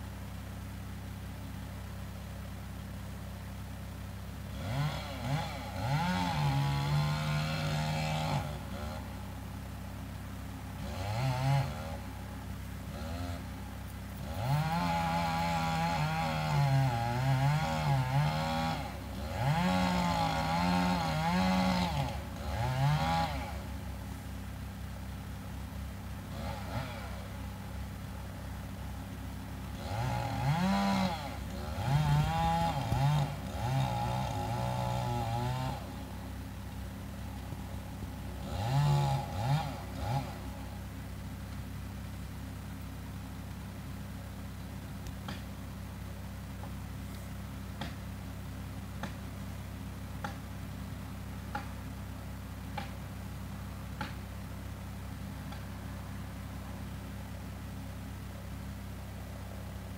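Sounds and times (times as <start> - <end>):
low engine drone: 0.0 - 59.9
chainsaw revving cutting wood: 4.5 - 9.3, 10.7 - 12.1, 12.8 - 24.2, 26.2 - 27.6, 29.6 - 36.2, 37.4 - 40.8, 49.0 - 49.2, 51.5 - 51.7, 52.7 - 53.0, 54.0 - 54.2.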